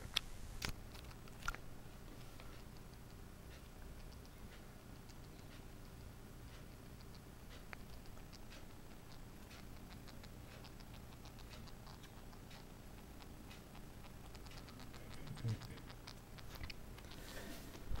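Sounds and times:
mouse scratching in cage: 5.0s - 18.0s.

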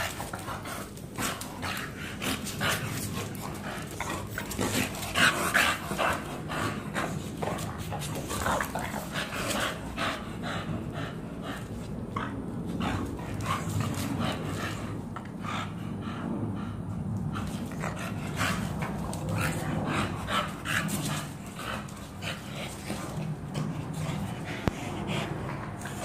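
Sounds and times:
dogs growling: 0.0s - 26.0s
dogs panting: 0.0s - 26.0s.

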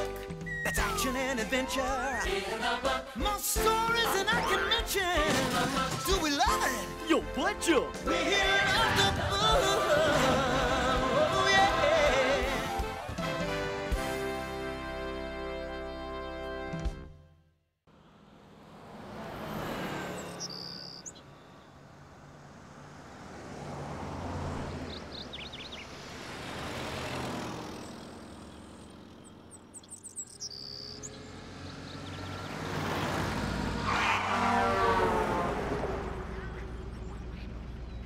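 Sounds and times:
cars driving past: 17.9s - 38.0s
bird chirps: 20.2s - 21.8s, 24.8s - 26.0s, 27.9s - 32.6s.

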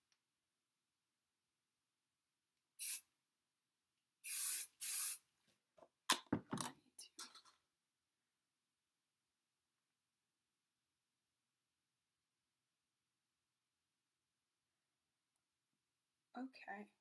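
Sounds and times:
aerosol can spraying: 2.8s - 3.1s, 4.2s - 5.2s
sharp knocks and clatters: 6.1s - 7.6s.

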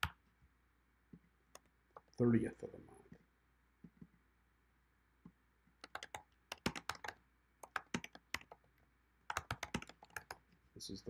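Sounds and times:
computer keyboard typing: 5.8s - 8.6s, 9.3s - 10.4s.

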